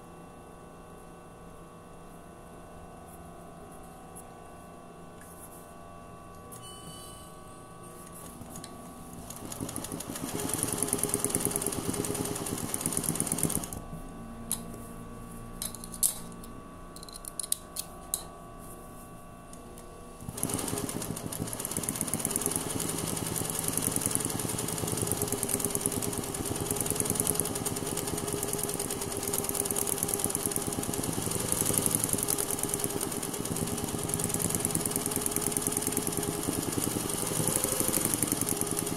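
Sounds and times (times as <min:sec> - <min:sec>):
sewing machine stitching: 0:08.2 - 0:13.8, 0:20.2 - 0:38.9.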